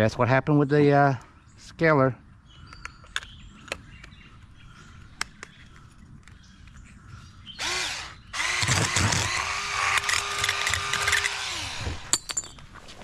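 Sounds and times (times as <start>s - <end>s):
electric fish scaler buzzing: 7.6s - 12.1s.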